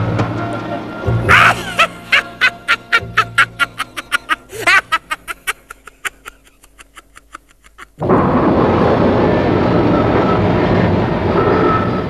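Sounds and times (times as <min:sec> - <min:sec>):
soft background music: 0:00.0 - 0:05.8
cartoon villain cackling laugh: 0:01.3 - 0:08.0.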